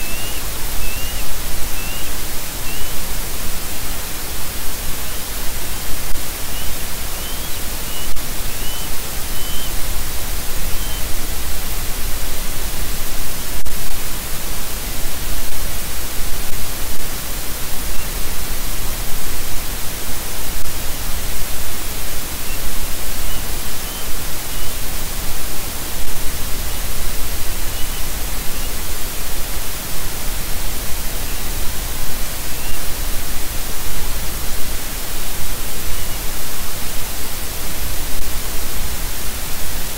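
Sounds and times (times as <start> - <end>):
faint high chirps: 0.0 - 3.1, 6.3 - 9.9, 10.6 - 11.2, 21.2 - 24.8, 27.5 - 28.8, 32.5 - 33.0
static hiss: 0.0 - 39.9.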